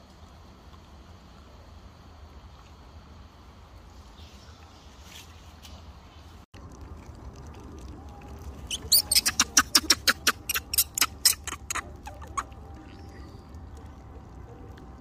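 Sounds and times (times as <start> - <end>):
baby monkey squeaking: 8.7 - 12.9.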